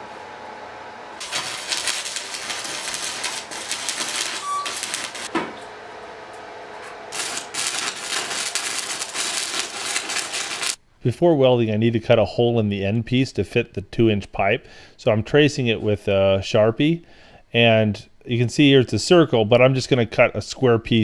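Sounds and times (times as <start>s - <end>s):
welding arc crackling: 1.2s - 5.3s, 6.8s - 10.8s.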